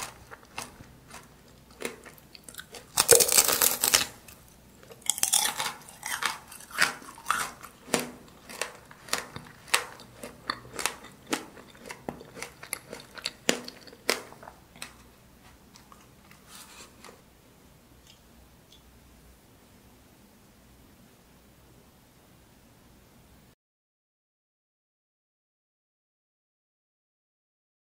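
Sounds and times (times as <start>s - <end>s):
hard sugar shell crunching: 0.0s - 17.2s.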